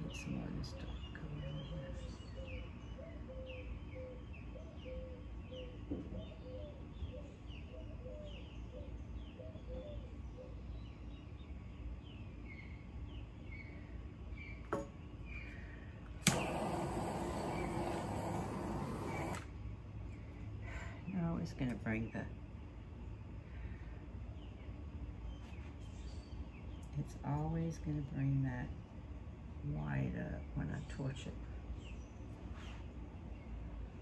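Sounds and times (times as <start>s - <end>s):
bird chirping: 0.0s - 15.6s
sharp click: 16.2s - 16.9s
torch hissing: 16.2s - 19.5s.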